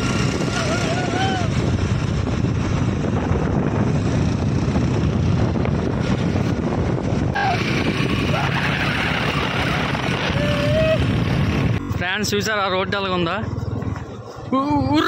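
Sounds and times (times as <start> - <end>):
motorbike engine and road noise: 0.0 - 15.0
wind buffeting microphone: 0.0 - 15.0.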